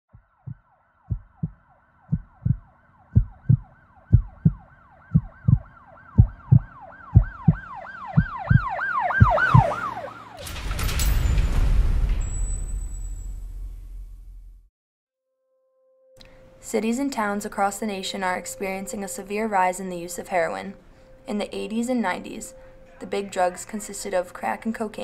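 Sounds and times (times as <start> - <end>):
low paired thumps: 0.1 - 9.8
yelping siren: 0.2 - 10.4.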